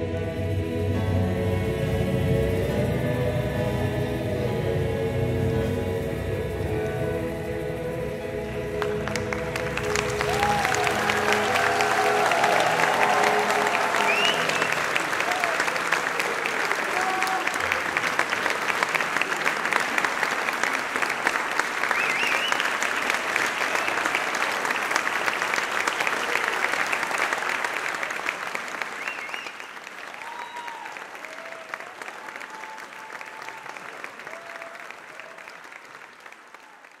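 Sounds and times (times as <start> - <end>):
audience applauding: 8.4 - 37.0.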